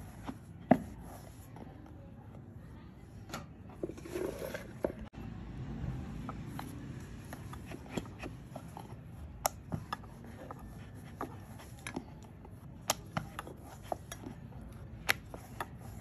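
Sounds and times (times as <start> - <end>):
rolling pin rubbing dough: 6.2 - 16.0.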